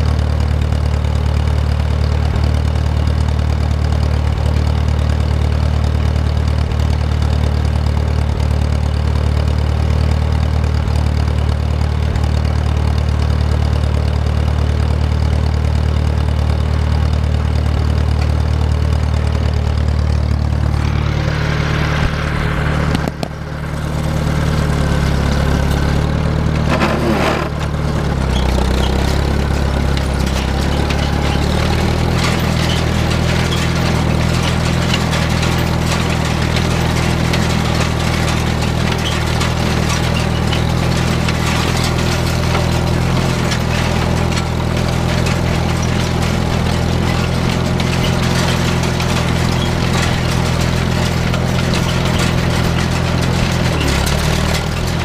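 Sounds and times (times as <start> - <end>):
tractor engine running: 0.0 - 55.0
rake rattling: 20.4 - 55.0.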